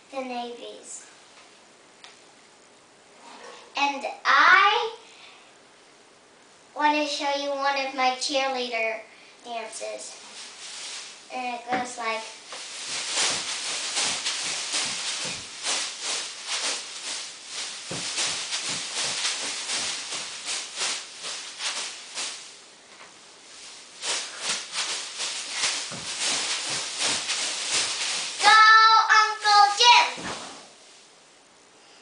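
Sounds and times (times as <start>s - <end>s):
tinsel pom-poms rustling: 9.5s - 31.2s
child shouting: 28.4s - 30.2s.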